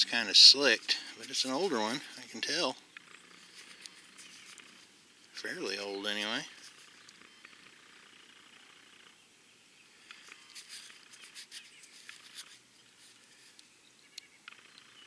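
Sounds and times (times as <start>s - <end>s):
fingers scratching a coin: 10.4s - 12.6s.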